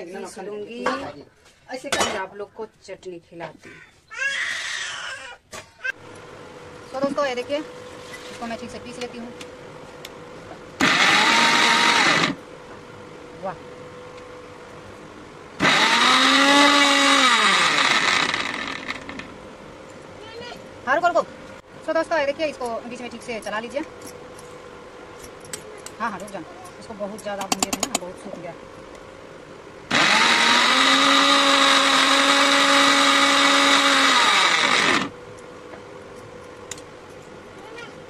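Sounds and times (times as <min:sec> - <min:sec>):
electric mixer grinder whining: 0:10.8 - 0:12.4, 0:15.6 - 0:19.3, 0:29.9 - 0:35.2
motor winding down: 0:10.8 - 0:12.4, 0:15.6 - 0:19.3, 0:29.9 - 0:35.2.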